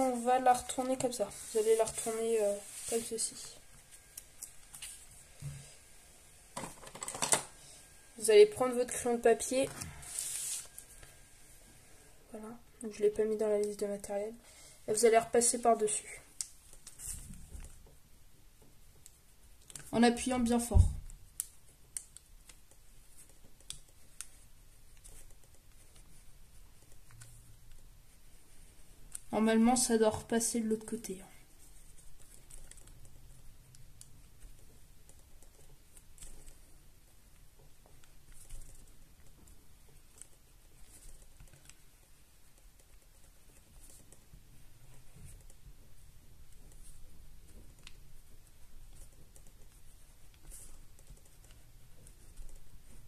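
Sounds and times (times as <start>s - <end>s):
pencil scratching on paper: 0.0s - 4.0s, 8.4s - 11.0s, 37.8s - 53.0s.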